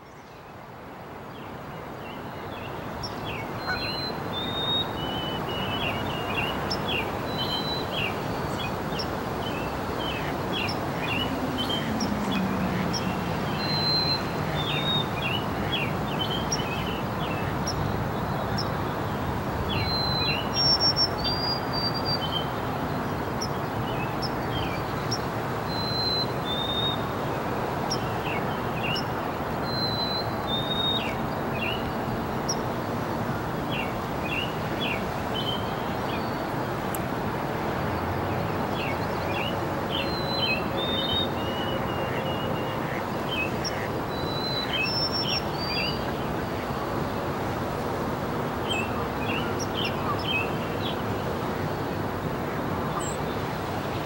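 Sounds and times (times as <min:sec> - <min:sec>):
low drone falling in pitch: 0:10.7 - 0:14.8.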